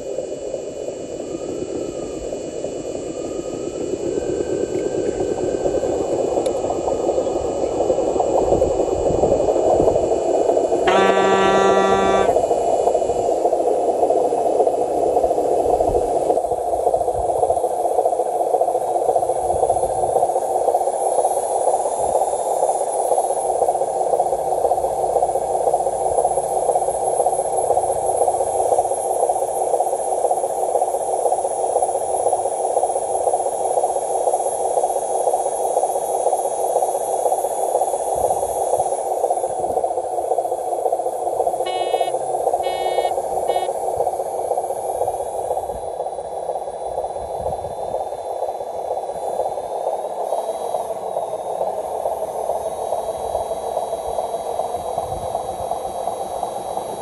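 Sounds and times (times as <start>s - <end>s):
beep: 10.9s - 12.4s, 41.7s - 43.7s
rc truck motor droning: 10.9s - 12.4s, 41.4s - 44.6s.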